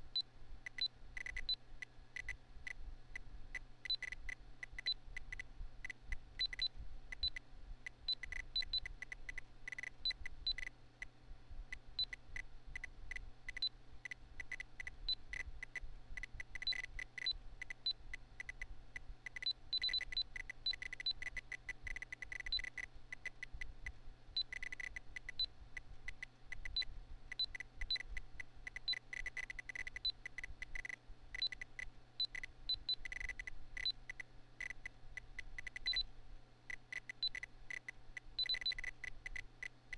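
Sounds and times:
computer fan hum: 0:00.0 - 0:39.9
short electronic beeps: 0:16.6 - 0:17.4, 0:19.4 - 0:21.4, 0:22.3 - 0:22.8, 0:28.8 - 0:30.2, 0:35.6 - 0:36.1, 0:38.4 - 0:38.9.

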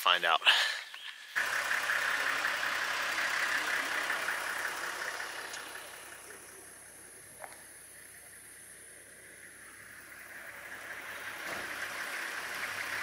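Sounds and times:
car engine idling: 0:00.5 - 0:13.0.

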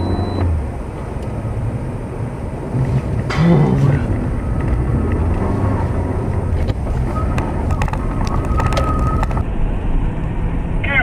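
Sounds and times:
vehicle rumble: 0:00.0 - 0:11.0
wind noise on microphone: 0:02.6 - 0:11.0.

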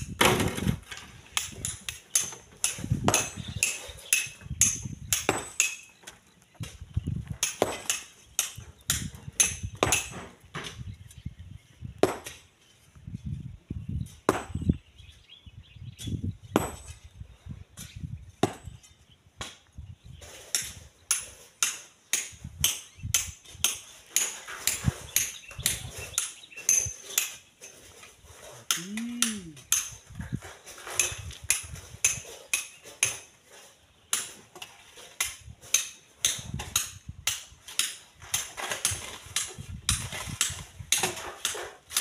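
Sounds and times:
metal tools striking stone: 0:01.4 - 0:06.0, 0:07.4 - 0:10.3, 0:20.5 - 0:27.8, 0:28.7 - 0:30.0, 0:31.0 - 0:33.3.

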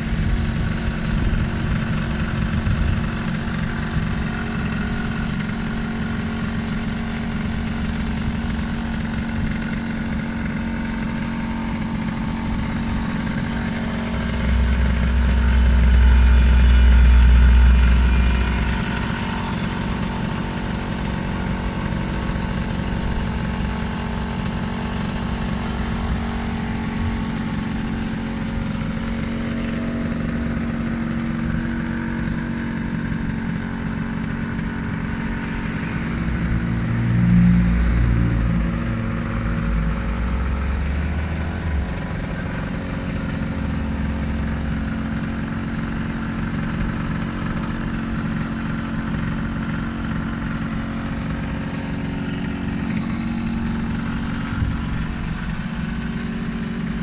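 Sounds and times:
moped engine idling: 0:00.0 - 0:57.0
low rumble: 0:13.0 - 0:19.9.

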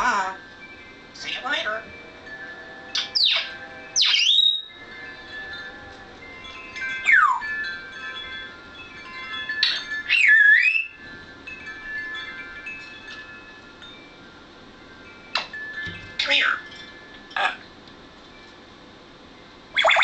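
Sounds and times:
faint chime-like ringing tones: 0:00.0 - 0:20.0
parrot whistling: 0:02.9 - 0:04.8, 0:06.8 - 0:07.5, 0:09.6 - 0:11.0, 0:19.8 - 0:20.0.

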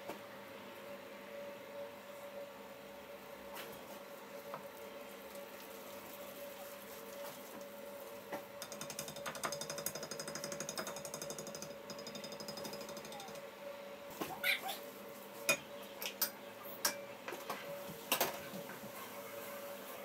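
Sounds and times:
wire whisk mixing batter: 0:05.1 - 0:13.4.

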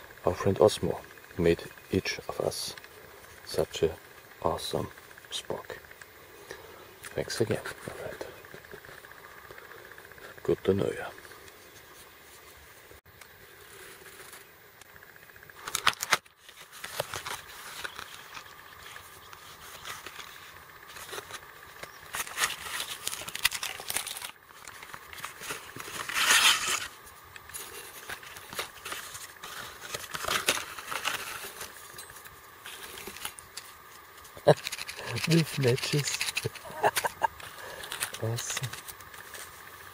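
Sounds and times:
cardboard and plastic crinkling: 0:15.6 - 0:33.8.

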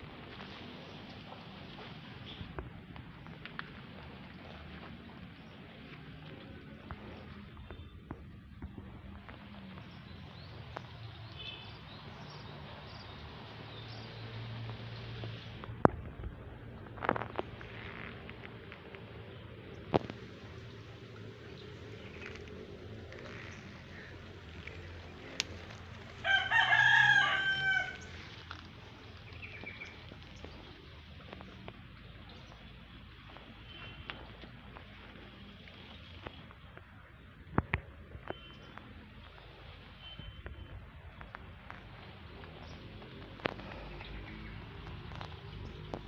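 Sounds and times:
rooster crowing: 0:26.2 - 0:28.2
faint bird chirps: 0:39.4 - 0:40.8.

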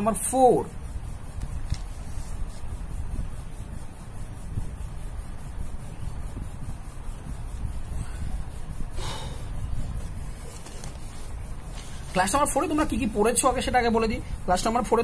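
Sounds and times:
pen scratching on paper: 0:01.1 - 0:15.0
paper rustle: 0:01.4 - 0:02.7, 0:10.0 - 0:13.6.

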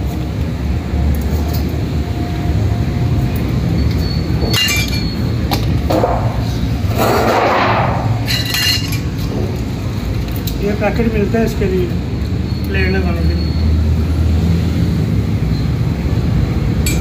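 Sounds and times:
metal clinks and rattles: 0:03.9 - 0:05.8, 0:08.2 - 0:10.6
rushing noise: 0:05.8 - 0:10.0.

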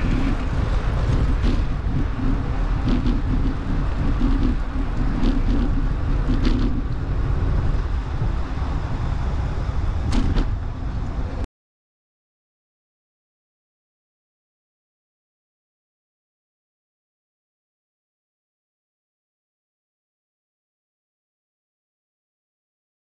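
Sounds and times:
bicycle rolling on concrete: 0:00.0 - 0:11.4
wind on microphone: 0:00.0 - 0:11.5.

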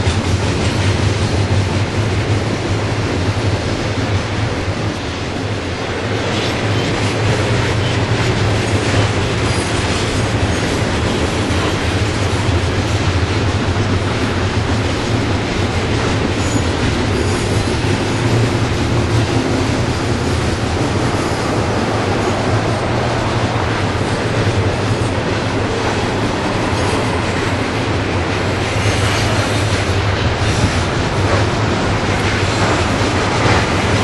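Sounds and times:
train wheels roaring on rail: 0:00.0 - 0:34.0.

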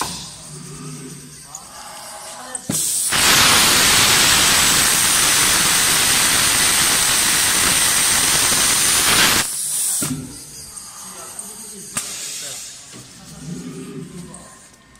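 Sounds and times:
compressed air hissing: 0:02.7 - 0:10.2, 0:12.0 - 0:12.9
thin high whine: 0:03.1 - 0:09.6.

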